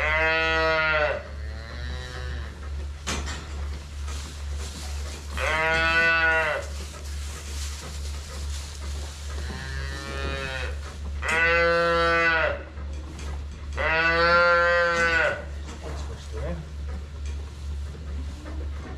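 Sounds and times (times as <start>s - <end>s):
steady low hum: 1.1s - 18.9s
calves bawling: 4.5s - 12.8s.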